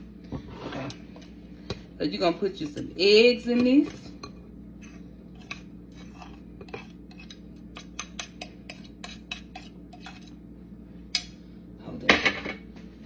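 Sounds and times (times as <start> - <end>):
fork scraping and tapping plate: 4.2 - 10.4.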